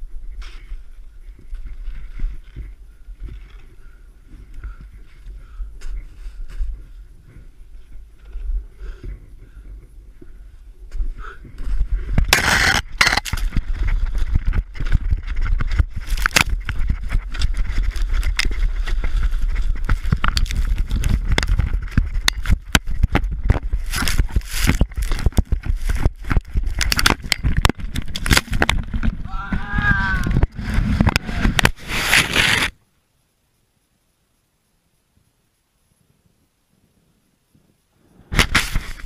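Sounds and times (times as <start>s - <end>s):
snow scraping against a camera: 12.3s - 14.8s, 23.6s - 26.9s, 30.3s - 32.8s, 38.0s - 39.0s.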